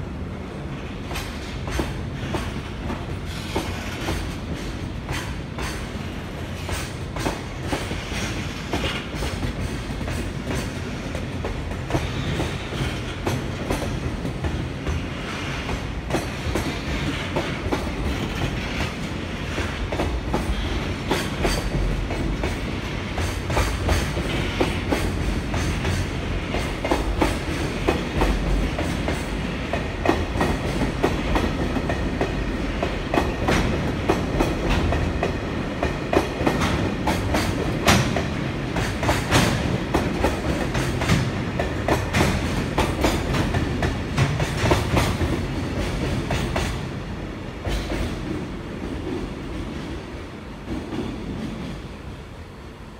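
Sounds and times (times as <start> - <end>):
train rumble: 0.0 - 52.9
train wheels clicking over rail joints: 0.8 - 46.9, 47.6 - 50.0.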